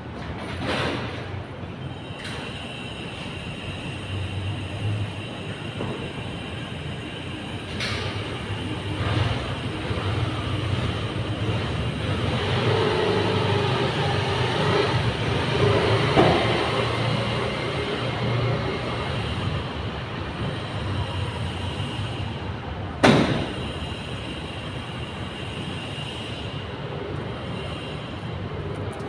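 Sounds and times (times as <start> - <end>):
rumbling background noise: 0.0 - 29.0
tailgate slamming shut: 23.0 - 23.6.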